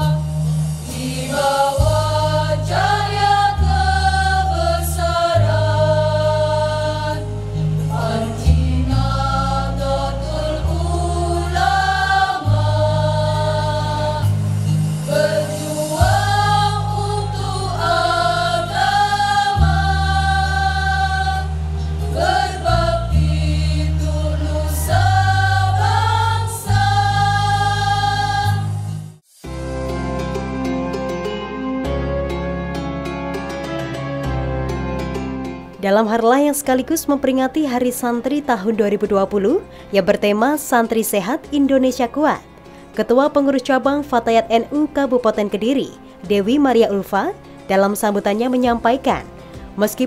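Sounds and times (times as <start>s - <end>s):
women's choir singing: 0.0s - 29.0s
soft instrumental music: 0.0s - 50.0s
electronic keyboard chords: 10.7s - 35.8s.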